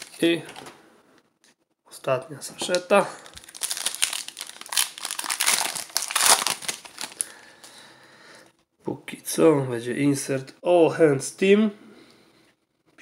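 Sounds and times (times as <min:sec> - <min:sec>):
plastic wrapper tearing and crinkling: 0:00.0 - 0:00.4, 0:02.6 - 0:07.4.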